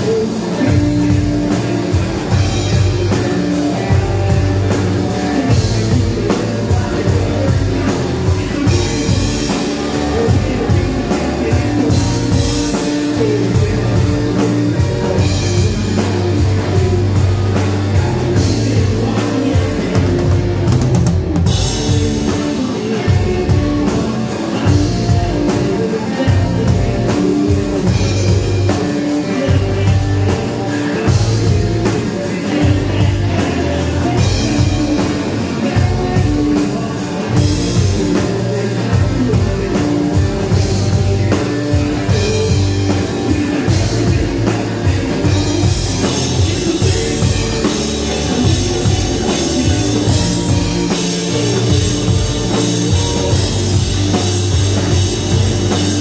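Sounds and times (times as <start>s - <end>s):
drum kit beat: 0.0s - 56.0s
electric guitar: 0.0s - 56.0s
rock band playing live: 0.0s - 56.0s.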